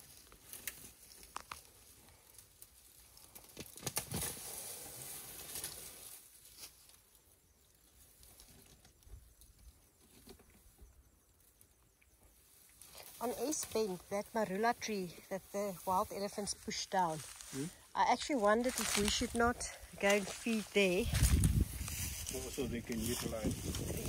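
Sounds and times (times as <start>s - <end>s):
twigs crackling and snapping: 0.0s - 4.5s, 12.7s - 24.0s.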